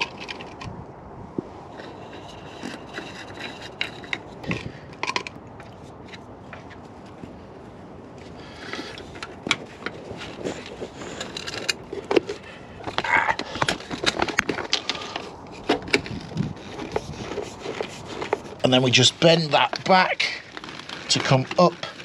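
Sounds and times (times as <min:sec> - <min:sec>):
cable ties zipping: 0:10.2 - 0:22.0.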